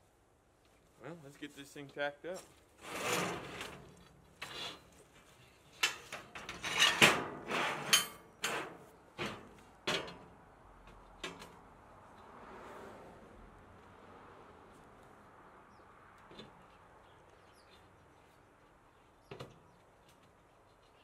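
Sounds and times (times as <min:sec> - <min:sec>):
steel plates clanking and scraping: 0:02.8 - 0:04.9, 0:05.8 - 0:09.4.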